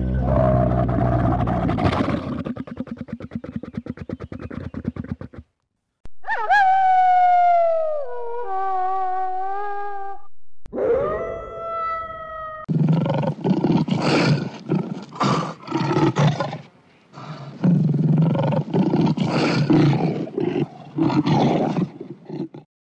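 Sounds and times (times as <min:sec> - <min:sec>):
lions growling and snarling: 0:00.0 - 0:05.4, 0:12.7 - 0:22.7
wolf howling: 0:10.7 - 0:12.7.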